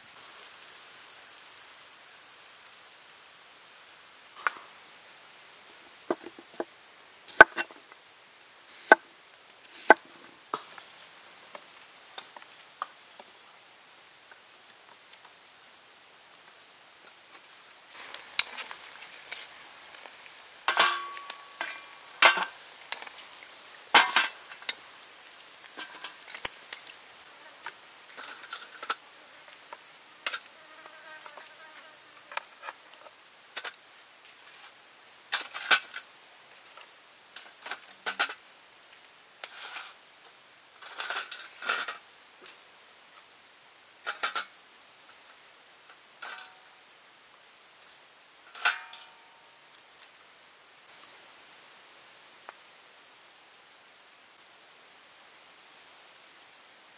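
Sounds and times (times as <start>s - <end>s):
fried pieces knocking and crackling: 5.9s - 8.0s, 8.7s - 9.1s, 17.4s - 27.0s.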